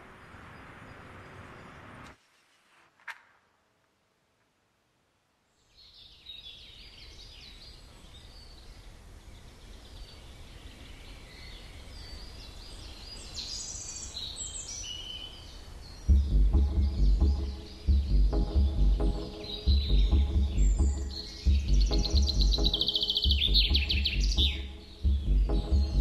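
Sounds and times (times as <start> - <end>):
birds chirping and singing: 5.8 - 26.0
electronic music with heavy beat: 16.1 - 26.0
low steady rumble: 16.1 - 26.0.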